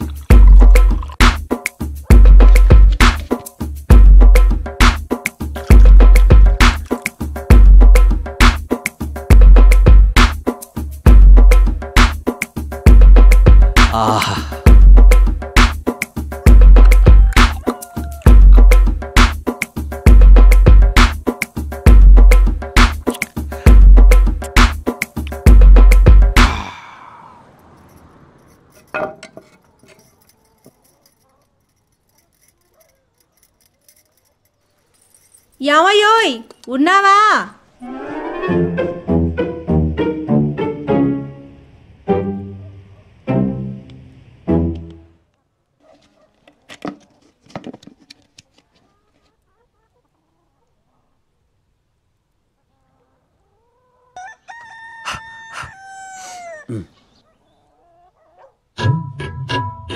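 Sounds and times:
man imitating rooster crow: 0:13.9 - 0:14.6, 0:17.0 - 0:18.6, 0:26.4 - 0:27.4, 0:54.2 - 0:57.0
metal utensils clinking: 0:27.8 - 0:35.7.

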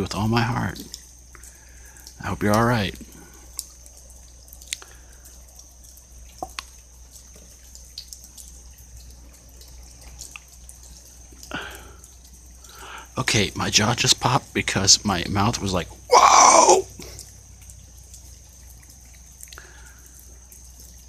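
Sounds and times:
faint steady hiss: 0:00.0 - 0:21.0
rainwater dripping: 0:00.0 - 0:21.0
breathy rush: 0:16.1 - 0:17.1.

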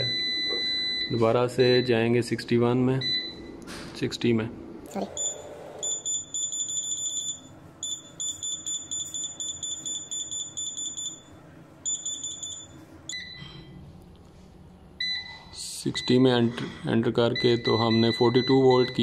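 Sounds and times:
keypad beeping: 0:05.2 - 0:11.2.

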